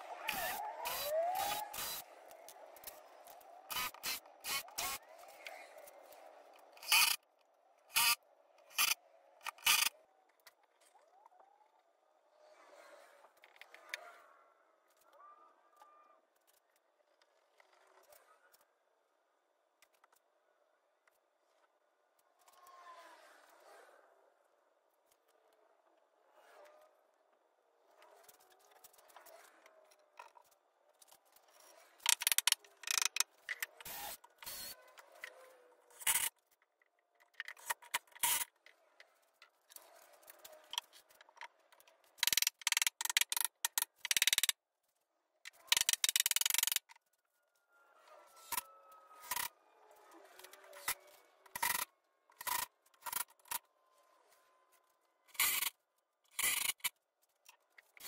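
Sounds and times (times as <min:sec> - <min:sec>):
cordless drill driving screws: 0:00.3 - 0:02.1, 0:03.7 - 0:05.0, 0:06.8 - 0:07.2, 0:33.8 - 0:34.8.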